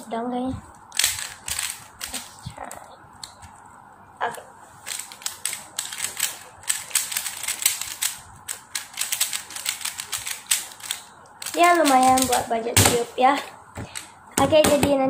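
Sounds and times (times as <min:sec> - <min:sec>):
speed cube plastic clicks: 0:00.9 - 0:02.3, 0:04.9 - 0:12.5.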